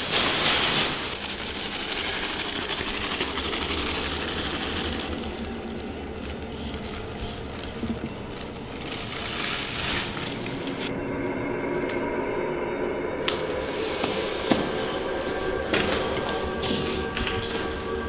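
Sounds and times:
powder pouring onto concrete: 0.4 - 5.7.

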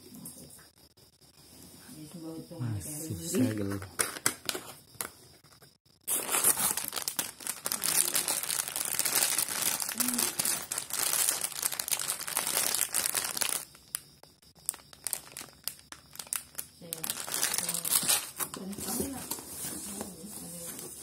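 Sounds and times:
plastic packet crinkling: 6.1 - 19.4.

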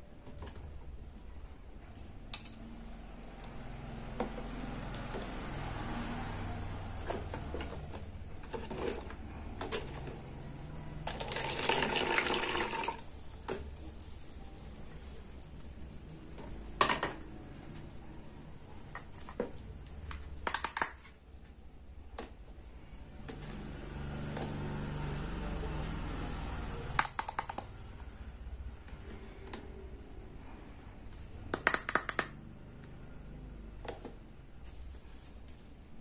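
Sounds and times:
water pouring into plastic cup: 11.1 - 13.2
plastic toy pieces clicking: 20.4 - 21.1, 27.0 - 27.6.

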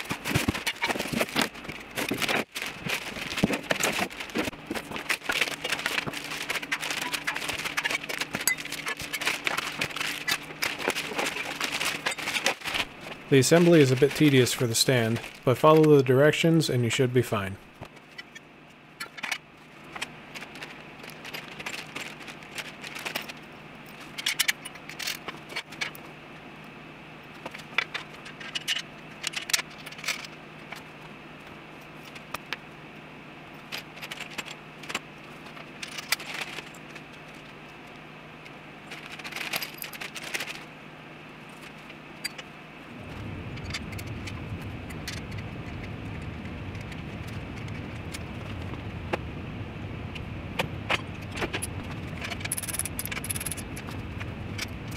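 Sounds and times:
low hum: 41.4 - 54.9
low rumble: 42.9 - 52.5
metal hardware clinking: 52.2 - 53.8.

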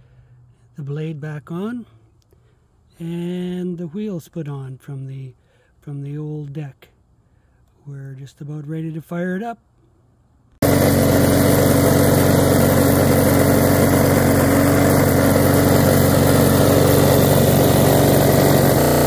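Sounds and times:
lawn mower engine running: 10.6 - 19.0.

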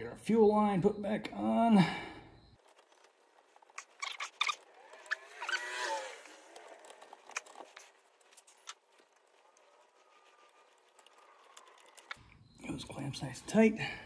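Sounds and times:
rubber hose squeak: 2.6 - 12.3.

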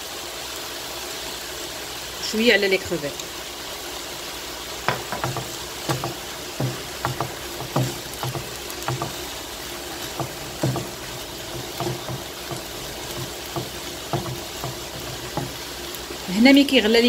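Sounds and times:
food sizzling in a frying pan: 0.0 - 17.0
spatula scraping a pan: 4.9 - 16.3.

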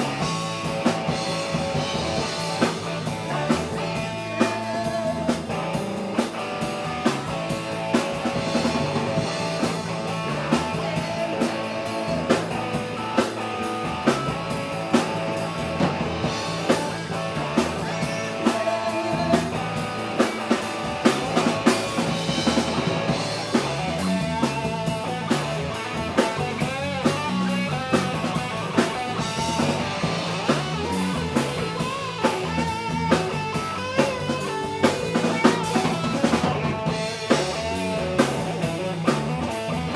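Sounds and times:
live rock band playing: 0.0 - 39.9.

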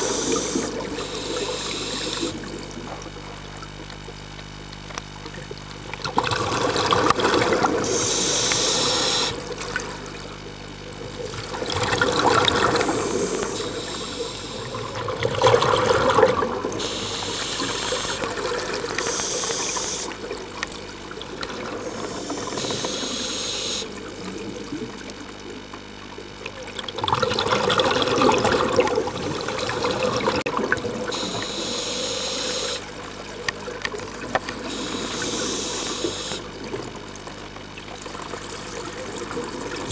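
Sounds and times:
regulator hissing inhalations: 0.0 - 2.4, 7.8 - 9.4, 12.7 - 14.8, 16.8 - 18.3, 19.0 - 20.1, 21.9 - 23.9, 31.2 - 32.9, 34.6 - 36.5
bubbling exhalations: 0.0 - 25.9.

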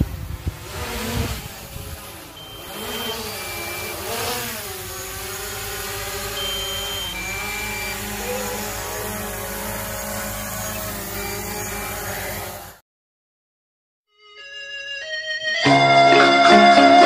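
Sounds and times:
drone propellers whining: 0.0 - 12.8.

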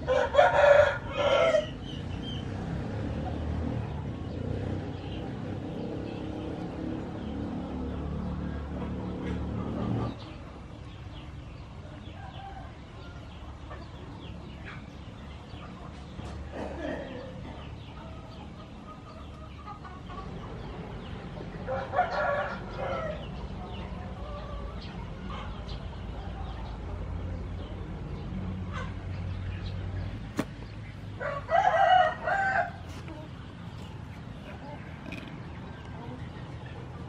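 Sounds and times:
rooster crowing: 0.0 - 1.8, 31.2 - 33.0.

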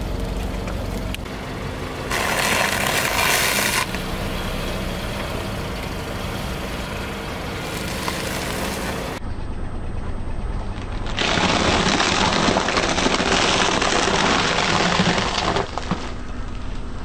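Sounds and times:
low engine hum: 0.0 - 11.4.

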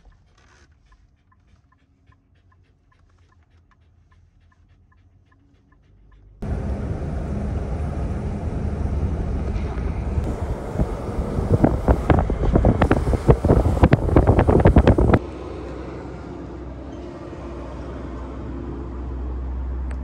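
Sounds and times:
steady hum: 6.4 - 15.2
wind rumbling on microphone: 6.5 - 15.2.

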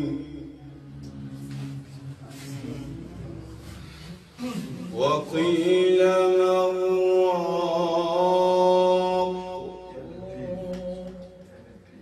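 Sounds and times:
man chanting recitation: 0.0 - 12.0.

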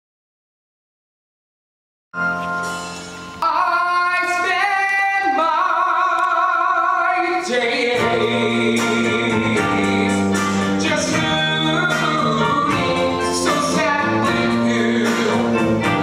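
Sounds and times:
person singing with accompaniment: 3.4 - 16.0.

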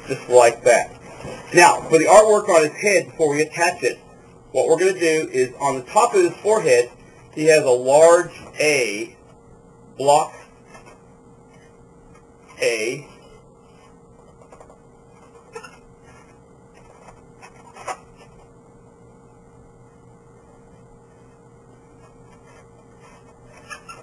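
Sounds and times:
faint hum: 0.0 - 24.0
pen scratching on balloon: 22.0 - 24.0.

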